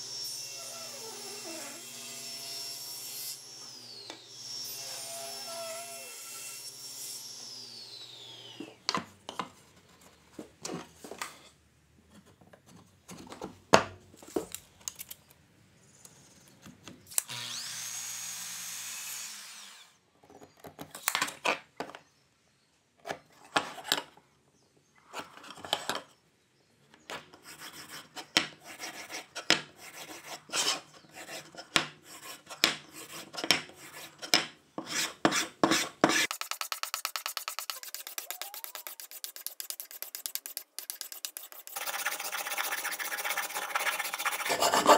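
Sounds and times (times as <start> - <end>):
miter saw cutting wood: 17.2 - 19.9, 41.5 - 44.9
hand tools rubbing wood: 27.5 - 44.9.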